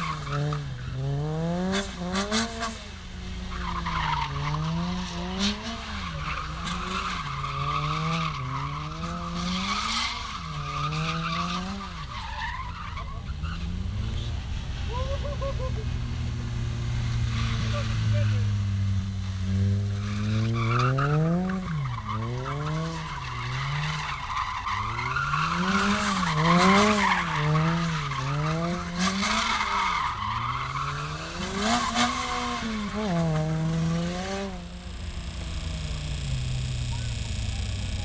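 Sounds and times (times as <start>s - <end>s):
car engine revving: 0.0s - 38.0s
tyres squealing on tarmac: 3.5s - 15.8s, 17.3s - 18.5s, 20.0s - 33.4s.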